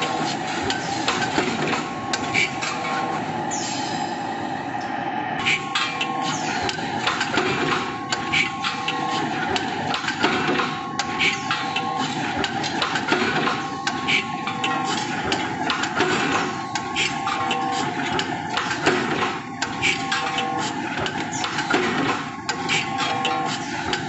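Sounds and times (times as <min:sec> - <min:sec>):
machine drone: 0:00.0 - 0:24.0
machine whine: 0:00.0 - 0:24.0.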